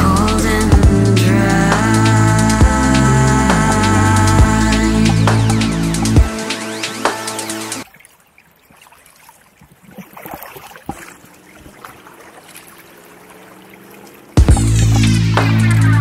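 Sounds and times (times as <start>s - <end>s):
electronic music: 0.0s - 7.8s, 14.4s - 16.0s
paddle splashing in water: 7.8s - 15.0s.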